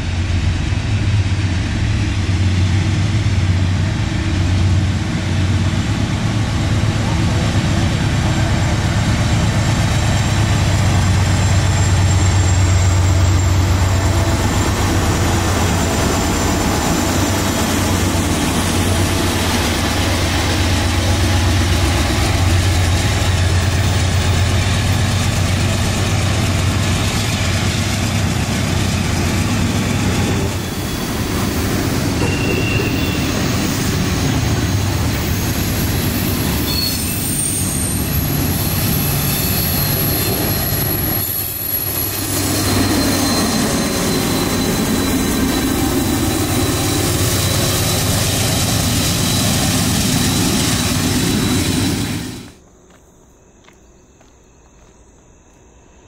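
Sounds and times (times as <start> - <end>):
train wheels rumbling on rails: 0.0 - 53.0
wheel squeals: 26.8 - 52.6.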